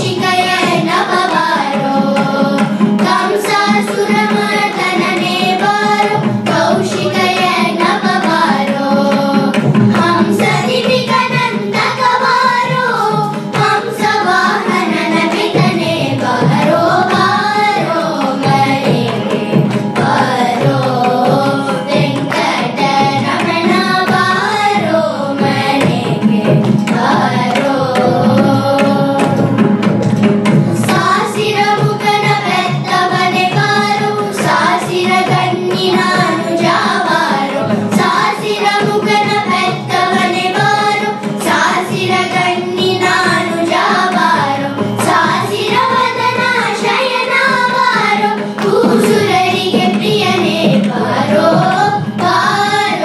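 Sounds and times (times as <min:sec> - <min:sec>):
children singing together: 0:00.0 - 0:53.0
mridangam drum strokes: 0:00.0 - 0:53.0.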